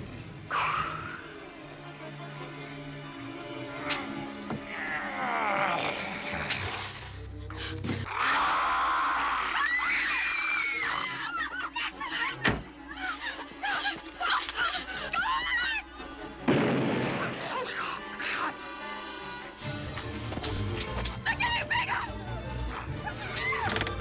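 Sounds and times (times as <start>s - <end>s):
horror music score: 0.0s - 24.0s
high-pitched shrieks and screams: 8.2s - 11.6s.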